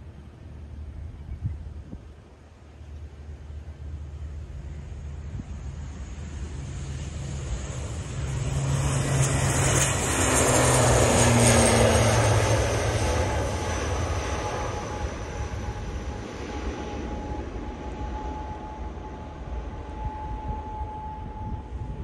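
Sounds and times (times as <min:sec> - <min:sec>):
turboprop airliner taking off: 0:00.0 - 0:22.0.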